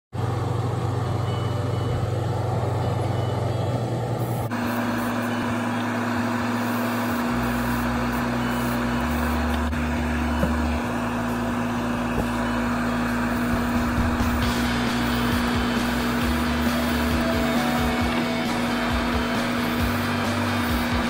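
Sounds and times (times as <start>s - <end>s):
extraction fan running: 0.1s - 21.0s
steady hum: 0.2s - 21.0s
airbrush spraying hiss: 6.5s - 9.7s, 12.9s - 21.0s.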